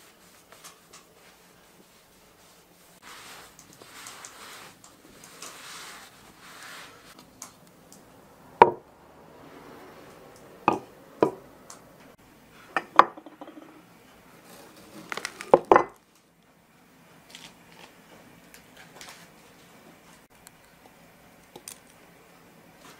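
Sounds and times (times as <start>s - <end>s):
towel rubbing: 0.0s - 7.2s
hard objects knocking on wooden bench: 10.7s - 11.4s, 12.8s - 13.8s.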